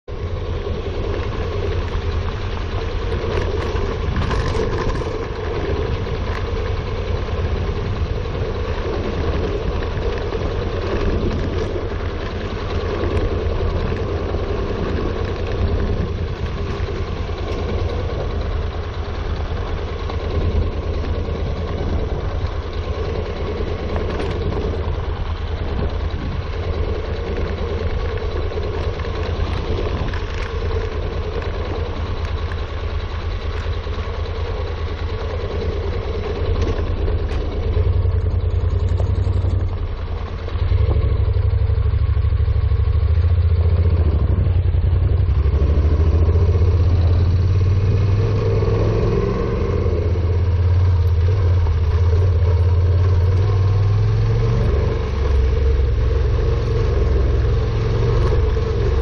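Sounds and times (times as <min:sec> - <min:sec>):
motorcycle engine running: 0:00.0 - 0:59.0
wind on microphone: 0:00.1 - 0:32.4, 0:43.1 - 0:59.0
tyres on gravel: 0:00.1 - 0:47.2.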